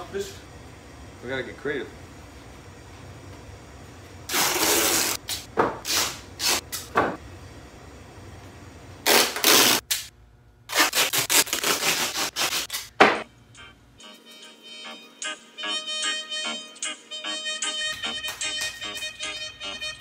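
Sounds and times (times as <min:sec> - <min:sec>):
rasping ripping strokes: 0:04.3 - 0:06.7, 0:09.0 - 0:10.1, 0:10.7 - 0:12.9.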